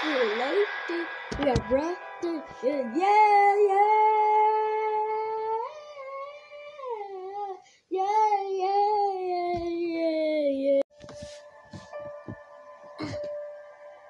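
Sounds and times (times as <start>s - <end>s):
child singing long notes: 0.8s - 10.8s.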